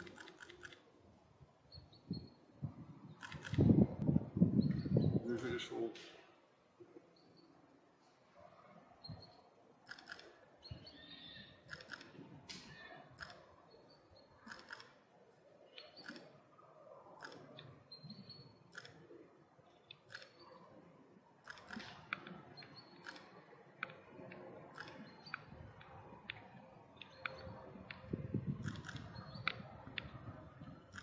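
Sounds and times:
faint camera shutter clicking: 21.4 - 22.3.

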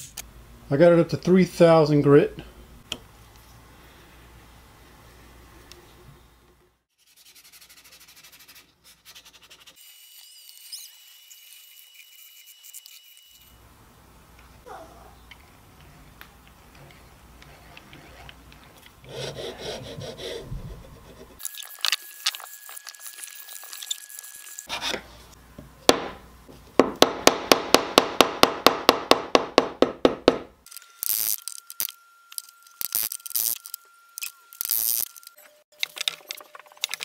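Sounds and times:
hand filing wood: 19.0 - 21.4.

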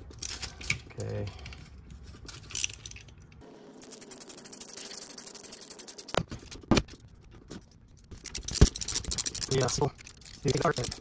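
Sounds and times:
hand ratchet clicking: 8.1 - 11.0.

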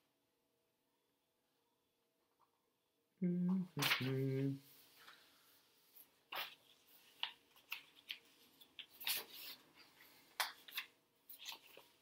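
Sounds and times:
paper rustling: 3.8 - 12.0.

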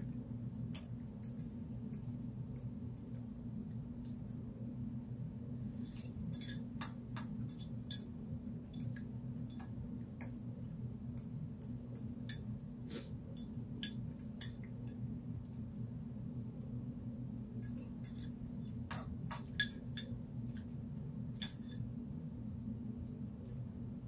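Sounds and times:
steady low hum: 0.0 - 24.0
utensil clinking on dish: 5.9 - 10.4, 17.6 - 20.2.

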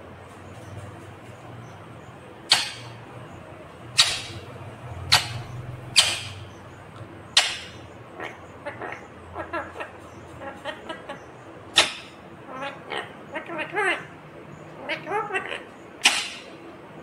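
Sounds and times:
parakeet chattering: 1.6 - 16.6
parakeet squawking: 2.4 - 3.0, 3.9 - 6.6, 7.3 - 14.1, 14.8 - 16.6.

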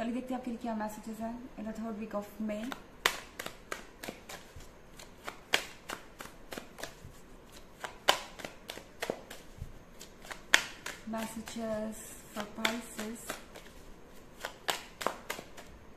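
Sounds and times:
sharp card snaps: 2.6 - 11.7, 12.3 - 13.8, 14.4 - 15.8
cards being shuffled: 2.6 - 15.8.

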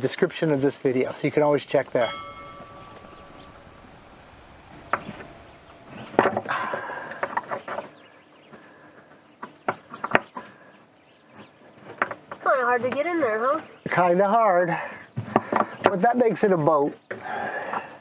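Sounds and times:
ringing tone: 2.0 - 7.3.

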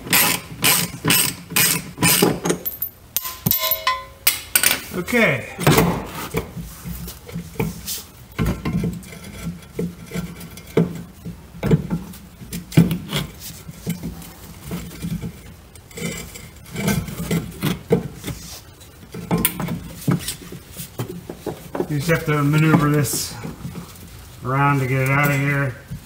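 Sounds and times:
metal knocks and clinks: 2.0 - 4.8.

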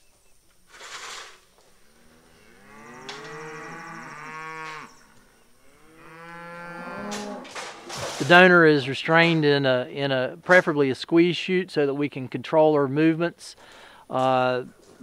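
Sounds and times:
cow mooing: 1.9 - 7.6.

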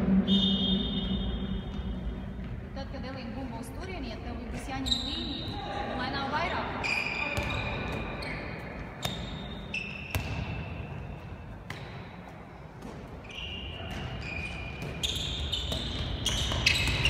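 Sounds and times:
ball bouncing on hard floor: 10.1 - 10.6.

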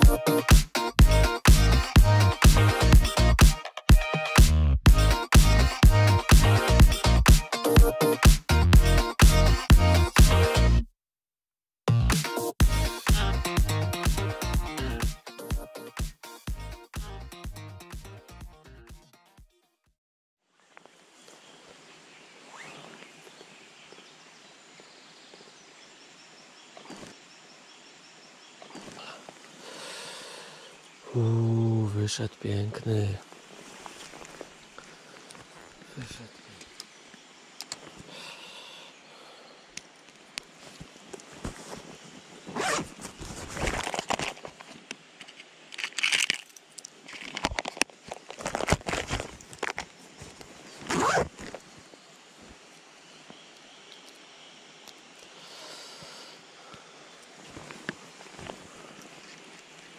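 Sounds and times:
outdoor hiss: 20.6 - 48.4, 49.1 - 59.9
rustling in plastic box: 42.6 - 44.7, 45.8 - 51.6.

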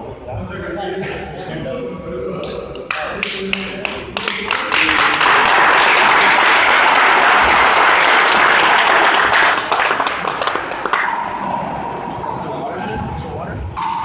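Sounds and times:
spectators applauding: 2.9 - 11.2.

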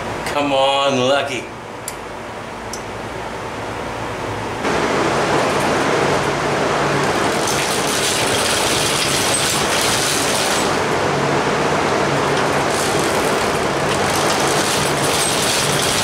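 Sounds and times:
moped pedals and chain whirring: 5.5 - 10.9, 12.0 - 16.0.

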